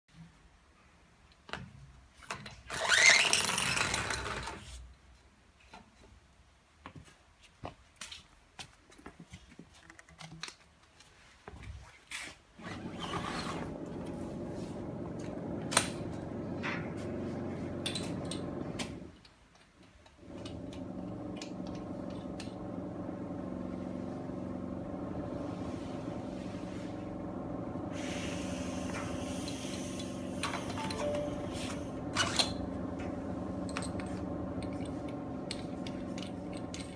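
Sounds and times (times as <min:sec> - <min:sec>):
electric motor humming: 0:13.4 - 0:19.1, 0:20.3 - 0:36.9
hiss: 0:27.9 - 0:31.8.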